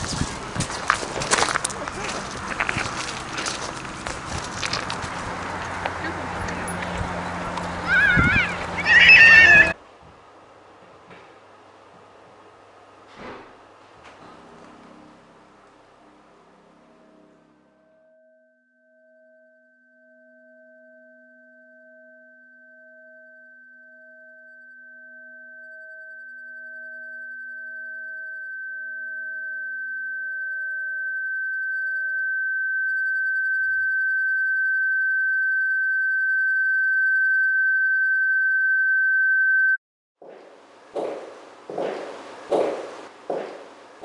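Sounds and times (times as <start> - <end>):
high-pitched electronic tone: 7.9 - 9.8, 19.6 - 39.8.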